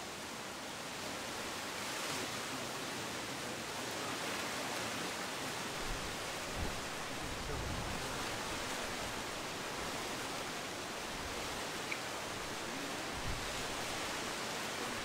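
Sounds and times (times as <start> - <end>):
outdoor background hiss: 0.0 - 15.0
wind rumble on microphone: 5.8 - 10.4, 12.5 - 15.0.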